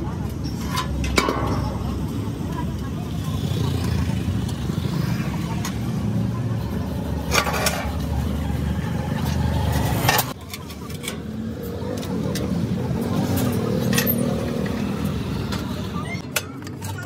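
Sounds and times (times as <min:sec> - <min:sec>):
metallic clanks of steel sheet: 0:00.6 - 0:02.1.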